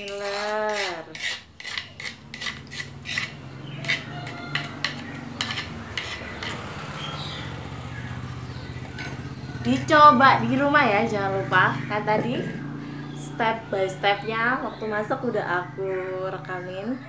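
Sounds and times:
metal spoon scraping mortar: 0.0s - 7.4s.

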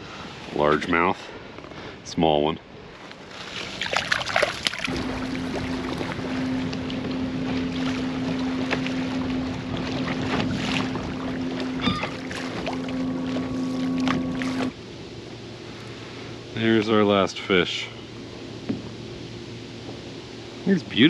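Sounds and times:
wind: 0.0s - 21.0s
water wash: 3.3s - 21.0s
boat motor humming: 4.5s - 21.0s
bird calling: 9.1s - 14.7s.

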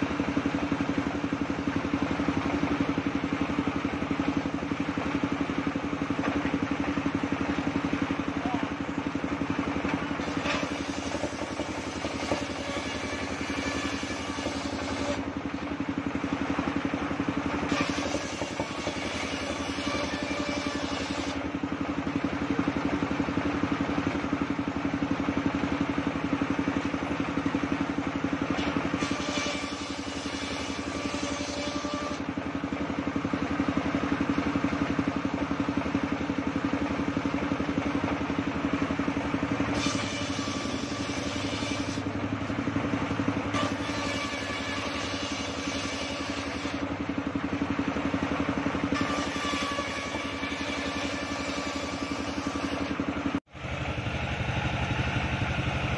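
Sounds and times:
table saw engine hum: 0.0s - 55.9s
saw blade cutting wood: 9.8s - 21.5s, 27.9s - 32.4s, 39.6s - 42.2s, 43.4s - 47.0s, 48.9s - 53.0s.

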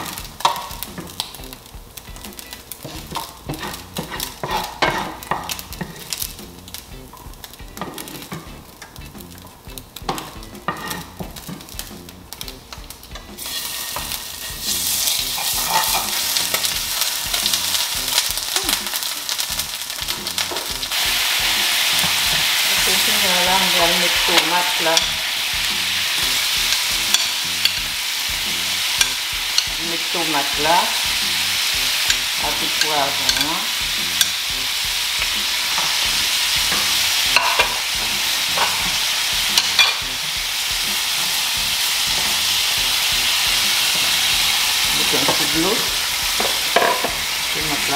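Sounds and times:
vegetables sizzling in oil: 0.0s - 47.9s
wooden spoon scraping pan: 2.8s - 6.2s, 13.4s - 16.4s.

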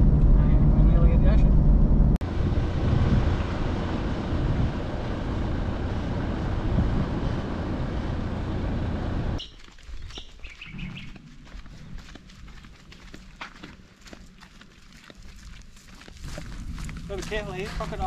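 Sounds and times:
wind on microphone: 2.2s - 9.4s
birds chirping: 9.4s - 12.3s.

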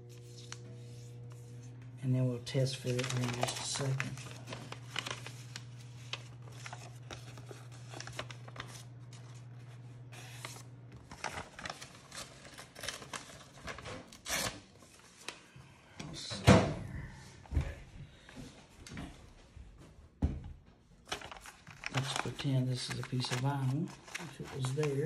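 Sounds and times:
vinyl sheet rustling and crinkling: 0.0s - 1.9s, 2.5s - 15.5s, 21.0s - 25.0s.

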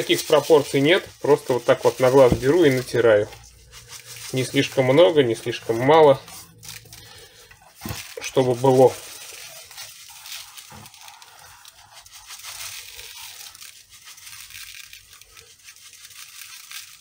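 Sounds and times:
salt grains scratching: 0.0s - 17.0s.

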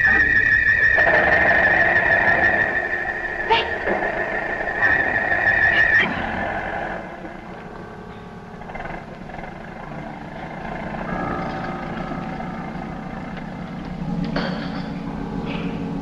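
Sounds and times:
dramatic background music: 0.0s - 16.0s.

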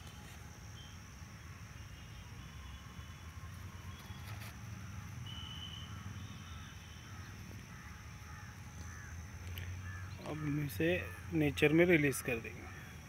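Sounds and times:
birds chirping: 3.9s - 13.0s.

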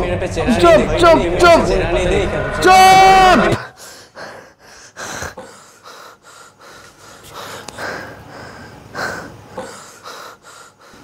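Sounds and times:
man gasping breaths in sleep: 3.6s - 11.0s.

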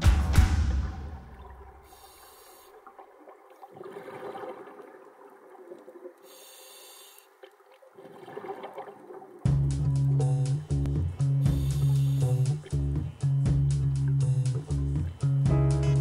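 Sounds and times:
diver breathing through regulator: 1.8s - 2.8s, 6.2s - 7.4s, 11.3s - 12.6s
exhaled air bubbling: 2.8s - 6.4s, 7.4s - 10.2s.

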